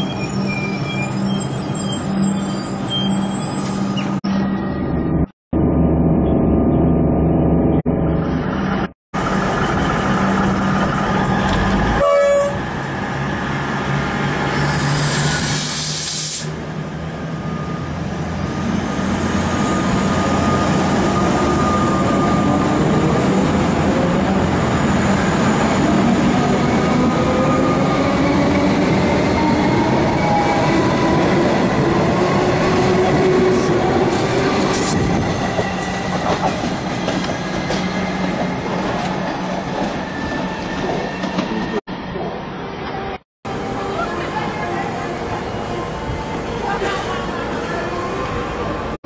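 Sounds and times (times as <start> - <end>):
air hiss: 14.6 - 16.5
train wheels clattering on rails: 34.7 - 40.0.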